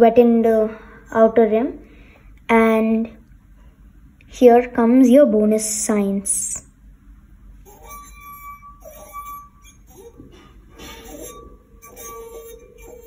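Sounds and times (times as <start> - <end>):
singing wine glass ringing: 7.6 - 13.0.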